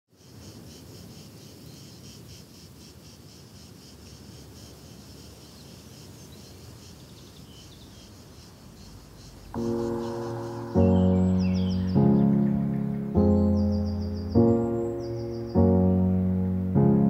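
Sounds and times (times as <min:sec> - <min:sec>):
crickets chirping: 0:00.1 - 0:16.8
low ambient rumble: 0:09.6 - 0:17.0.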